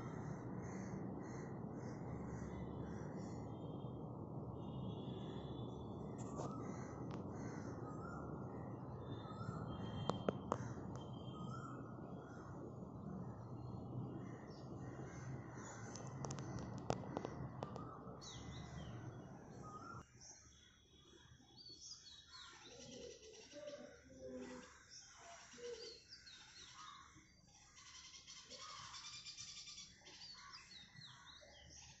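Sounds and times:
low background rumble: 0.0s - 20.0s.

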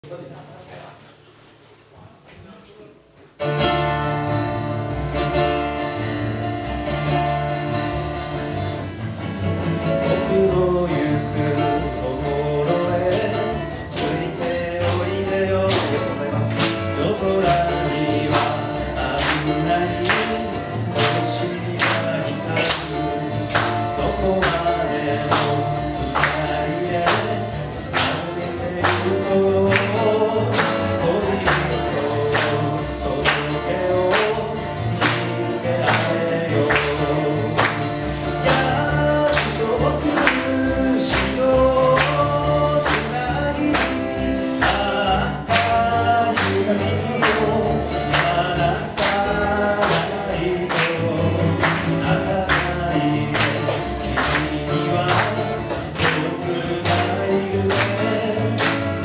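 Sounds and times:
strummed acoustic guitars: 3.3s - 59.0s
plucked double bass: 3.4s - 59.0s
man singing into a microphone: 10.0s - 59.0s.

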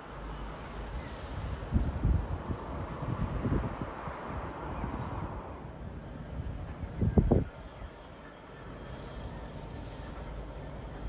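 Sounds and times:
wind noise on microphone: 0.9s - 7.9s.

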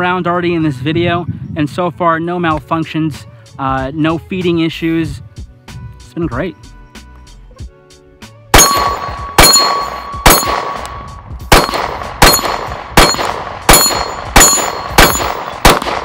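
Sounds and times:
pistol shots: 8.5s - 16.0s
steel targets clanging: 8.6s - 10.8s, 11.5s - 15.6s.

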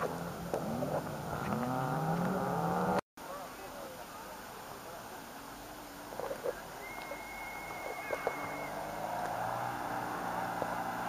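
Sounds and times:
distant rally car engine: 0.0s - 3.0s, 6.9s - 11.0s.

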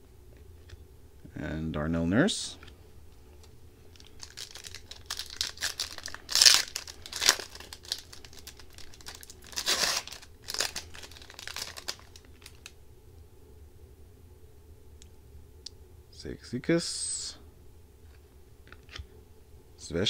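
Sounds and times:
foil wrapper tearing and crinkling: 4.0s - 12.7s.

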